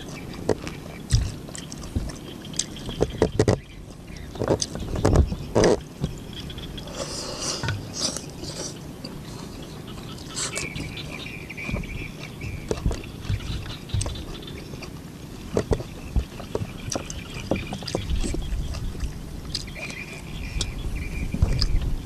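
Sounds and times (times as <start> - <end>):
chewing and lip smacks: 0.0 - 3.3, 7.0 - 20.8.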